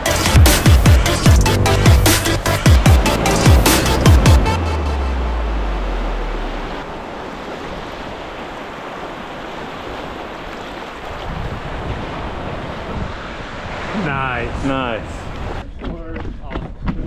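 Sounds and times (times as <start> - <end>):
low bass note: 0.0 - 6.8
surf breaking on beach: 3.0 - 15.6
wind buffeting microphone: 6.9 - 17.0.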